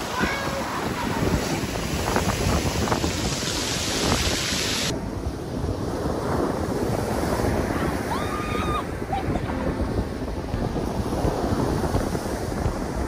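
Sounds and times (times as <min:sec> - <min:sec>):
surf breaking on shingle beach: 0:00.0 - 0:13.0
wind buffeting microphone: 0:00.0 - 0:13.0.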